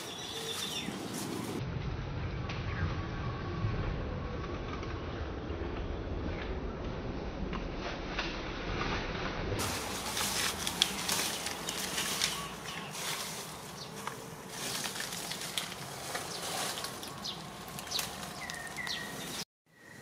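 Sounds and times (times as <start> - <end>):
leaves and branches rustling: 0.0 - 1.6, 8.8 - 19.5.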